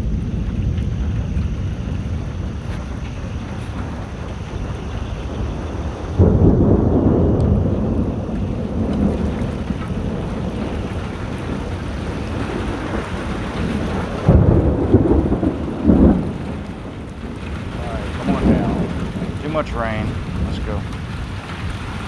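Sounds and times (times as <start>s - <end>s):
heavy rain hissing: 0.0s - 22.0s
thunder rumbling: 0.0s - 22.0s.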